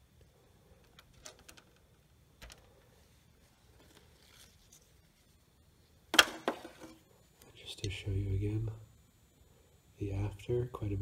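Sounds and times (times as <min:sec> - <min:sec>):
faint clicks of small parts: 0:00.2 - 0:02.8
rustling scrape: 0:02.9 - 0:05.5.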